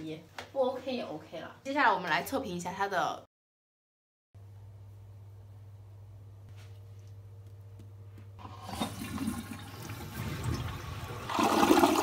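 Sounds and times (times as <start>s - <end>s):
faint steady hum: 4.4s - 11.8s
toilet flushing: 8.4s - 12.0s.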